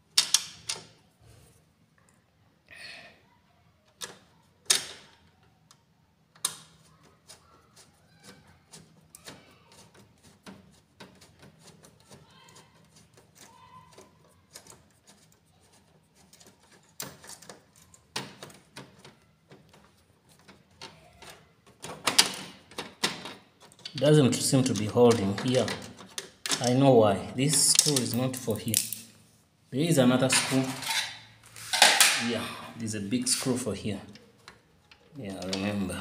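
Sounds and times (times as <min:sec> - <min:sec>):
faint ticking and scraping: 0:06.8 - 0:22.0.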